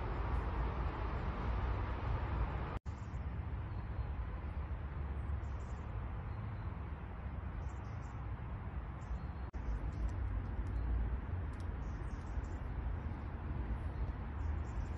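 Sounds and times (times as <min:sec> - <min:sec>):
outdoor background noise low rumble: 0:00.0 - 0:14.9.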